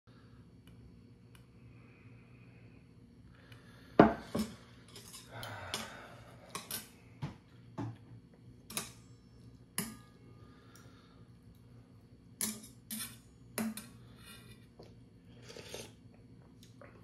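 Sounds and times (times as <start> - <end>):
chopsticks and spoon clinking on bowl: 4.1 - 6.9.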